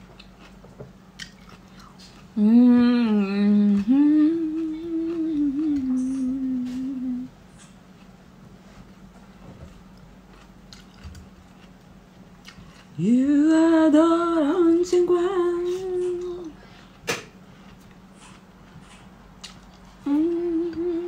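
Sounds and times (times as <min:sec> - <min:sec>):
woman humming: 0:02.4 - 0:07.4, 0:13.0 - 0:16.6, 0:20.0 - 0:21.0.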